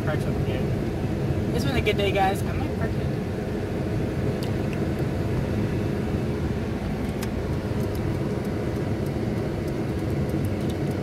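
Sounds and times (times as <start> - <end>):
truck engine and tyres rumbling: 0.0 - 11.0.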